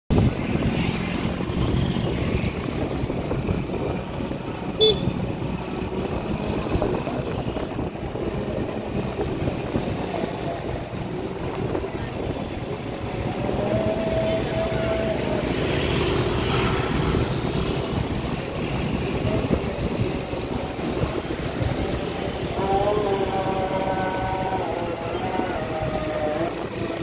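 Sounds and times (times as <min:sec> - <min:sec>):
traffic noise: 0:00.1 - 0:27.0
short horn toot: 0:04.8 - 0:05.2.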